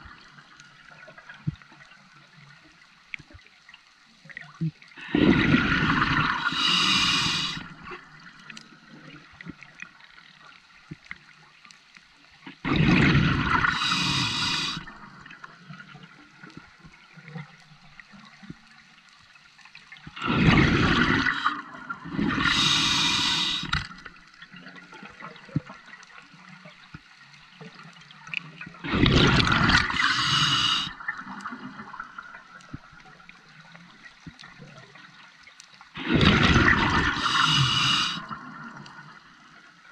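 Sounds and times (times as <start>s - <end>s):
quiet water noise: 0.0s - 39.9s
air bubbles rushing: 5.0s - 7.7s, 12.6s - 14.8s, 20.2s - 24.0s, 28.8s - 31.1s, 36.0s - 38.5s
diver breathing through regulator: 5.0s - 7.8s, 13.4s - 15.0s, 20.2s - 23.9s, 29.1s - 31.0s, 36.1s - 38.4s.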